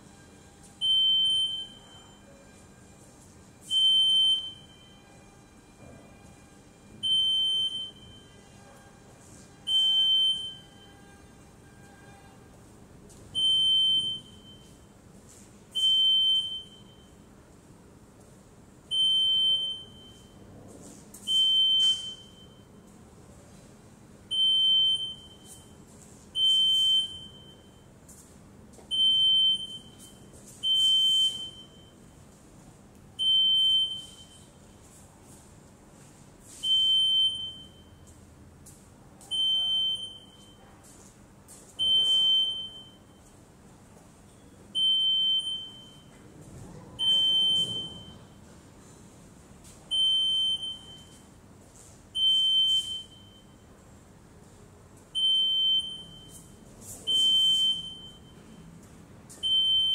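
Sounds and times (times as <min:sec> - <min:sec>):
metal detector alarm beeps: 0:00.8 - 0:02.1, 0:03.6 - 0:05.0, 0:07.0 - 0:08.3, 0:09.7 - 0:10.8, 0:13.4 - 0:14.8, 0:15.8 - 0:17.2, 0:18.9 - 0:20.4, 0:21.3 - 0:22.7, 0:24.3 - 0:25.8, 0:26.4 - 0:27.8, 0:28.9 - 0:32.0, 0:33.2 - 0:34.5, 0:36.6 - 0:38.1, 0:39.3 - 0:40.6, 0:41.8 - 0:43.2, 0:44.8 - 0:46.1, 0:47.0 - 0:48.3, 0:49.9 - 0:51.2, 0:52.2 - 0:53.6, 0:55.2 - 0:56.5, 0:57.1 - 0:58.6, 0:59.4 - 0:59.9.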